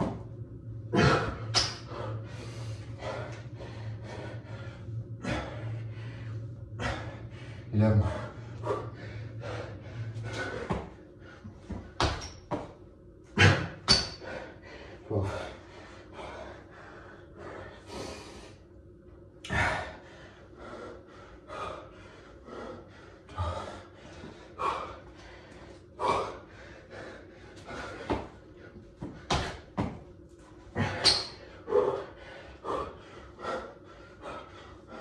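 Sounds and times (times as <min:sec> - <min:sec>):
man breathing hard: 0:00.0 - 0:12.1, 0:13.4 - 0:18.8, 0:19.4 - 0:29.8, 0:30.6 - 0:35.0
hands and feet thumping on tiles: 0:10.3 - 0:11.0, 0:11.6 - 0:12.8, 0:28.0 - 0:28.4, 0:29.0 - 0:30.1.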